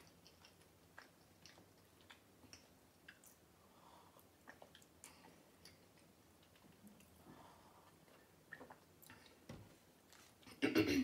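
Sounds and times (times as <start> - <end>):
sipping and swallowing: 4.2 - 7.2, 7.8 - 9.4.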